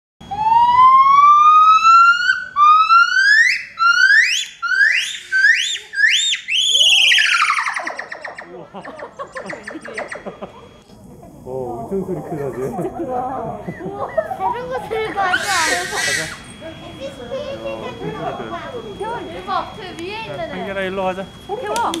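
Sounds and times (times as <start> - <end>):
gibbon whistled call: 0.3 - 10.7, 15.2 - 16.6.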